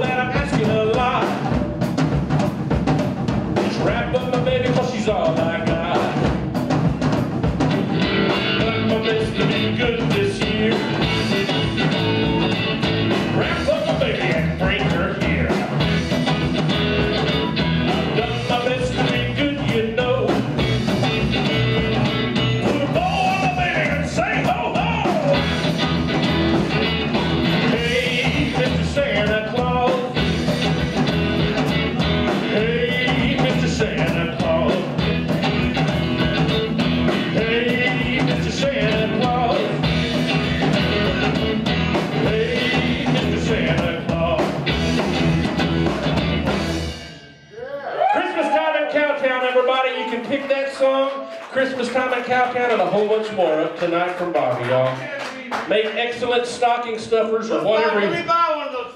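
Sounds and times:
live blues-rock band: 0.0s - 47.4s
bending harmonica lead line: 7.6s - 50.5s.

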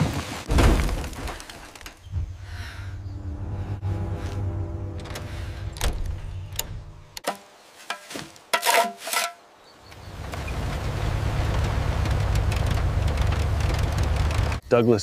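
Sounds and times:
shovel scraping in soil: 7.2s - 9.4s.

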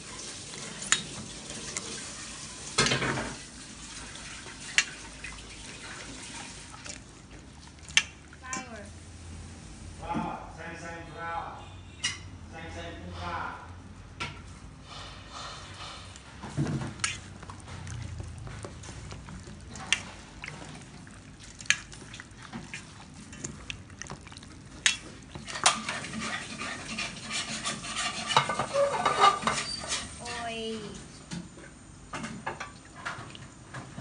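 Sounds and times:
wet squelching of meat: 3.9s - 8.6s, 16.9s - 26.9s.

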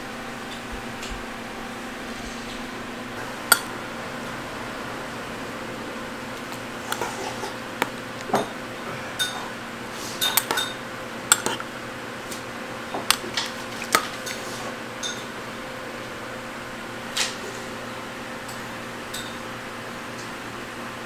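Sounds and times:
metal spoon clinking on bowl: 3.5s - 3.7s, 10.2s - 11.6s.

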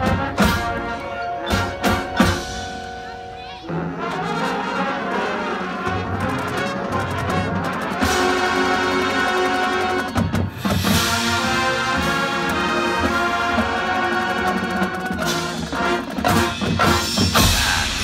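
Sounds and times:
marching drums and percussion: 0.0s - 18.0s
brass sustained chords: 3.7s - 9.9s.

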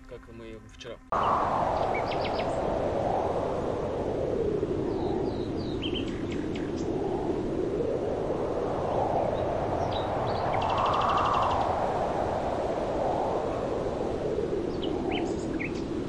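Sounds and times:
small birds chirping: 0.2s - 2.7s, 4.8s - 7.1s, 9.2s - 11.9s, 14.6s - 16.0s.

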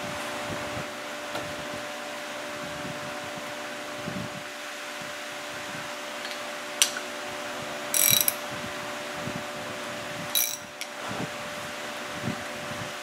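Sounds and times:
steady low hum: 3.9s - 11.8s
ratchet wrench clicking: 8.0s - 8.4s, 10.3s - 10.8s.

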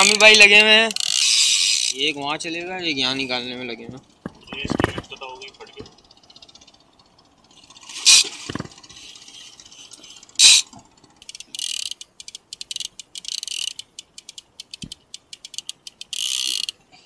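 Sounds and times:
fishing reel ratchet clicking: 0.0s - 2.2s, 9.8s - 16.8s.

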